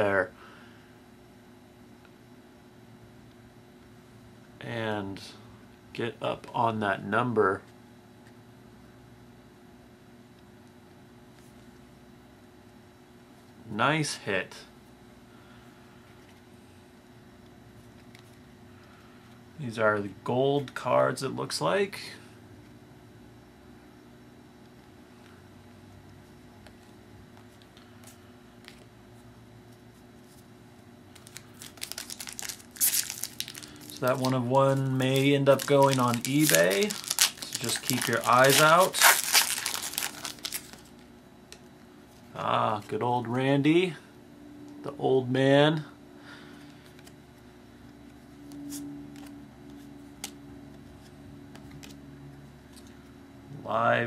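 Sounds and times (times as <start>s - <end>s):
steady low hum: 0.0s - 54.0s
cards rustling: 31.1s - 41.0s
foil wrapper crinkling: 31.1s - 41.0s.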